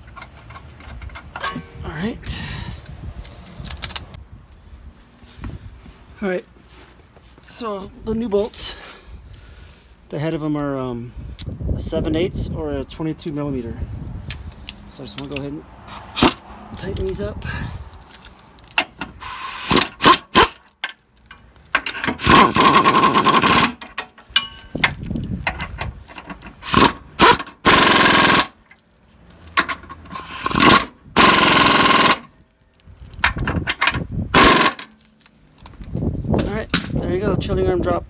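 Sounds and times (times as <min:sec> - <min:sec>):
impact wrench bursts: 0:19.0 - 0:20.7, 0:22.0 - 0:23.9, 0:26.6 - 0:28.6, 0:30.0 - 0:32.4, 0:34.3 - 0:35.0.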